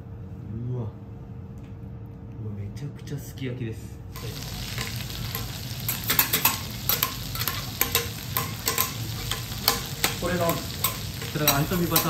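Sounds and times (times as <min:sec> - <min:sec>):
butter sizzling on a griddle: 0:04.1 - 0:12.0
metal spatulas scraping and clicking: 0:04.2 - 0:12.0.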